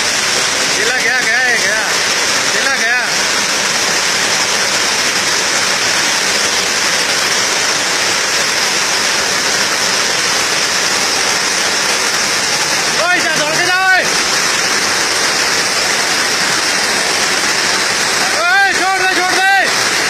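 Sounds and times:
floodwater rushing: 0:00.0 - 0:20.0.

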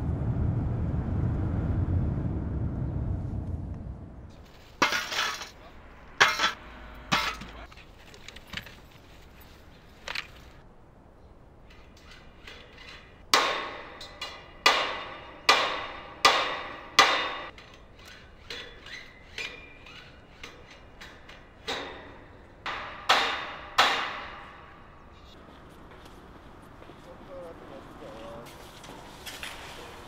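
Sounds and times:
hammer striking metal handrail: 0:06.2 - 0:07.7, 0:13.3 - 0:17.6, 0:19.3 - 0:24.9.

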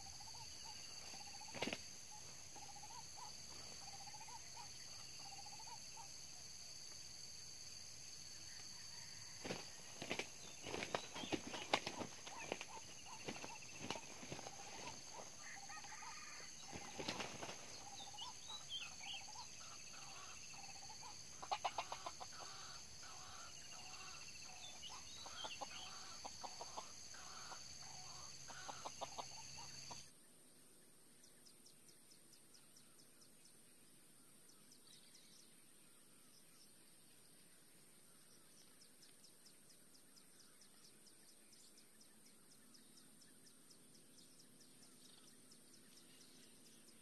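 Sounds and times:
roosters clucking: 0:00.0 - 0:05.6, 0:09.2 - 0:30.1
high insect drone: 0:00.0 - 0:39.3
wings flapping: 0:00.9 - 0:04.0, 0:09.4 - 0:18.4.

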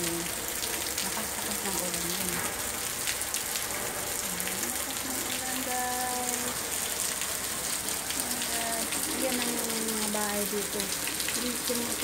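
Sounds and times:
heavy rain: 0:00.0 - 0:12.0
water gushing on pavement: 0:00.0 - 0:12.0.

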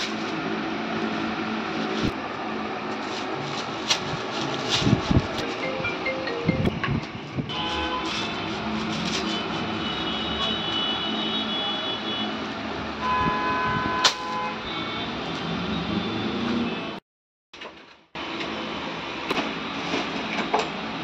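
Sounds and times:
traffic noise: 0:00.0 - 0:17.0, 0:17.6 - 0:21.0
high tones: 0:05.5 - 0:07.0.

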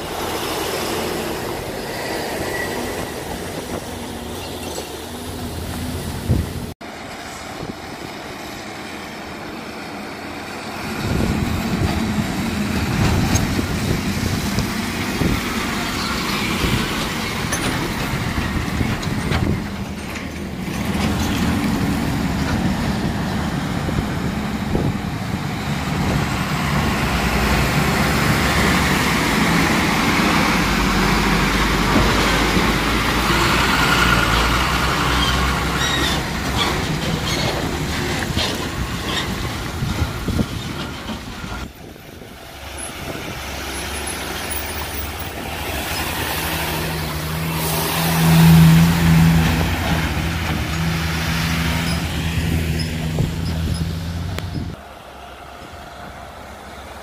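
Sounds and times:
tyres hissing on wet road: 0:00.0 - 0:17.5, 0:21.4 - 0:57.0
diesel truck engines passing: 0:00.0 - 0:57.0.

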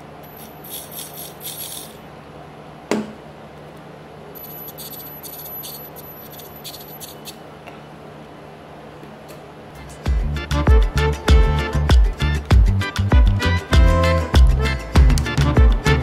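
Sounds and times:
toy car motor and gears whirring: 0:00.2 - 0:02.0, 0:04.4 - 0:07.4.

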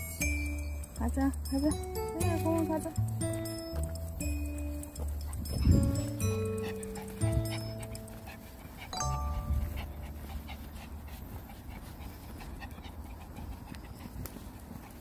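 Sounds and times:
small dog panting: 0:00.0 - 0:15.0.

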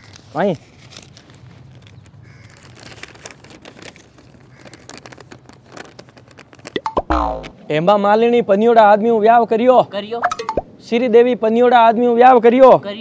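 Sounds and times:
paper rustling and crinkling: 0:00.0 - 0:06.8.

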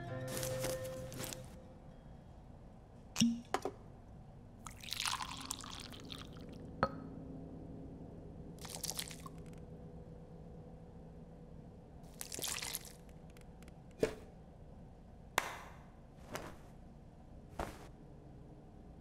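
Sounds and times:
water pouring from a ladle: 0:04.7 - 0:06.5, 0:08.6 - 0:09.4, 0:12.1 - 0:13.0.

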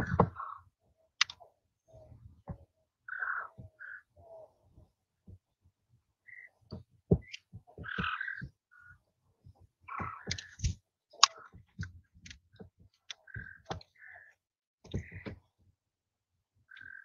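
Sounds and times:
quail chirping: 0:00.0 - 0:00.6, 0:03.1 - 0:04.5, 0:06.3 - 0:09.0, 0:09.9 - 0:11.7, 0:13.1 - 0:14.3, 0:16.7 - 0:17.0.

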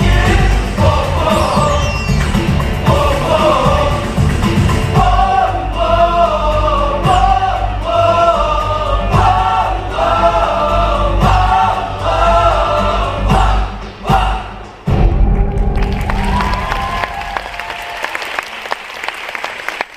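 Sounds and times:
ensemble singing in harmony: 0:00.0 - 0:15.4.

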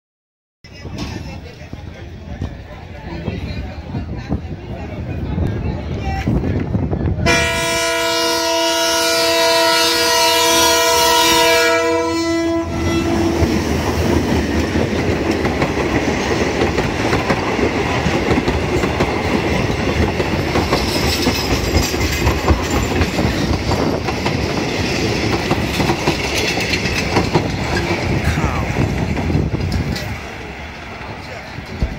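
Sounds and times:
train horn blast: 0:07.2 - 0:13.5
train wheels clattering over joints: 0:13.4 - 0:28.2, 0:28.8 - 0:31.9.

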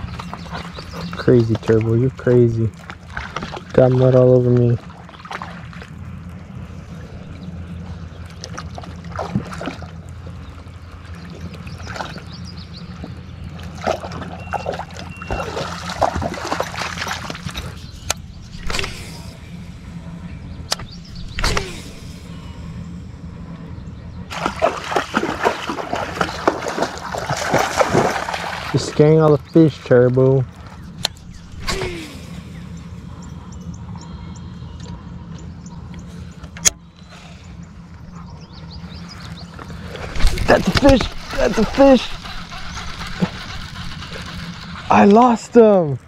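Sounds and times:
steady low hum: 0:00.0 - 0:46.0
dog splashing through water: 0:13.6 - 0:17.8, 0:24.3 - 0:29.0.

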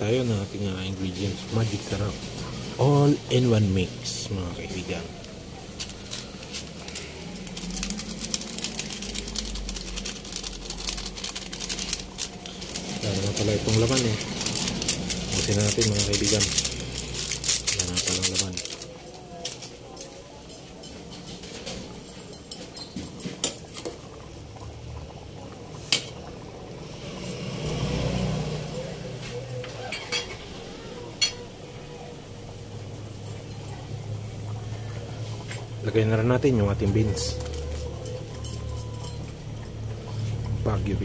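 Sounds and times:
broth boiling and bubbling: 0:00.0 - 0:41.0
granules poured in: 0:04.1 - 0:19.2.

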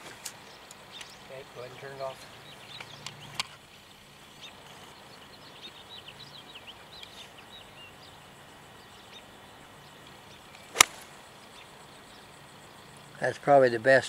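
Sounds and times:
small birds chirping: 0:00.0 - 0:13.9
golf club striking ball: 0:10.7 - 0:11.2.

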